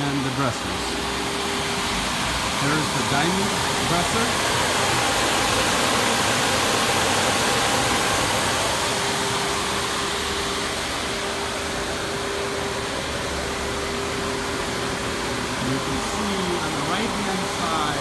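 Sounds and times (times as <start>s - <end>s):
mid-pitched machine hum: 0.0s - 18.0s.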